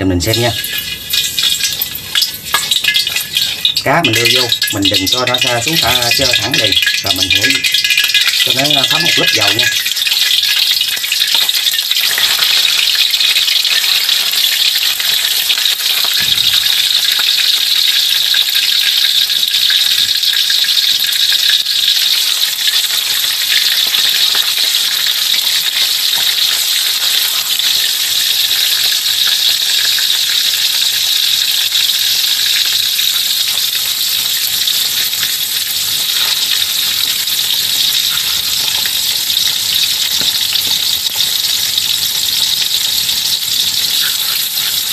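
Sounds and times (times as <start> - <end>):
fish sizzling in hot oil: 0.0 - 44.9.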